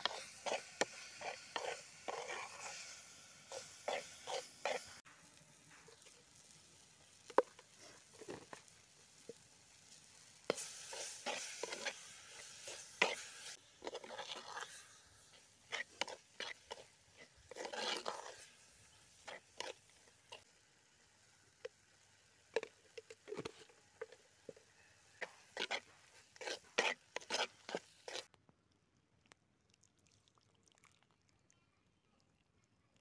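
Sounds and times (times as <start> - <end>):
metal spoon scraping a pot: 0.0 - 5.0, 10.4 - 20.5, 22.6 - 28.3
onions frying in a pot: 0.0 - 28.3.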